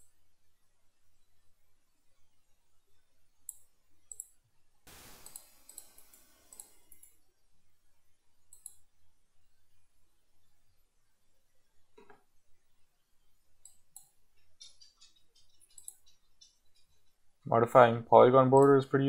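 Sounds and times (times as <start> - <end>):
faint computer mouse clicks: 5.2 - 7.2, 8.5 - 8.8, 13.6 - 16.5.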